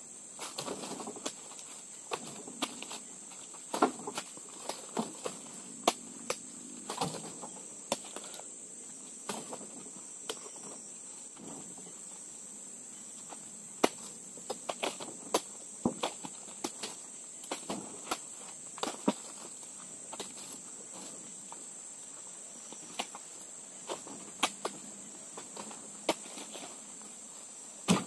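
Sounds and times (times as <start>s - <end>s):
high insect buzz: 0.0s - 28.0s
knocks and thuds of fruit bunches: 0.4s - 8.4s, 9.2s - 11.9s, 13.2s - 21.6s, 23.8s - 26.9s.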